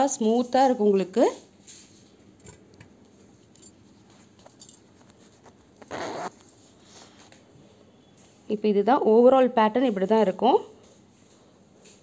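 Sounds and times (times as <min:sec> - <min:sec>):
zip being drawn: 0:05.8 - 0:06.3.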